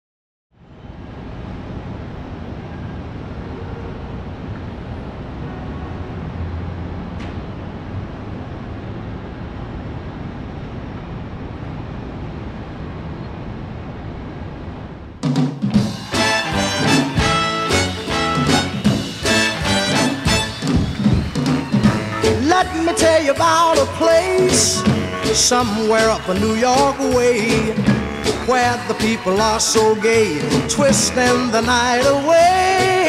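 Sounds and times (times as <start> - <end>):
steady din of noise: 0.6 - 33.0
drum kit strikes: 15.2 - 33.0
live band playing: 15.2 - 33.0.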